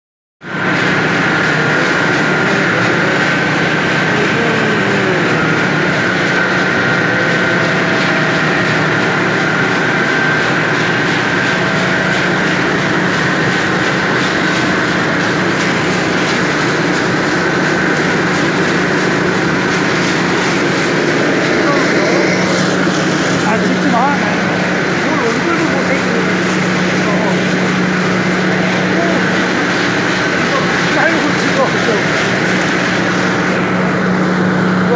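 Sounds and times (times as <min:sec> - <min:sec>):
factory machinery running: 0:00.4 - 0:34.9.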